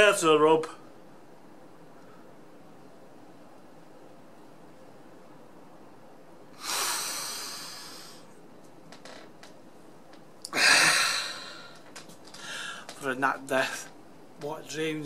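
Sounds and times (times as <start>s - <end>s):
man breathing out through nose: 6.6s - 8.3s, 12.4s - 12.9s.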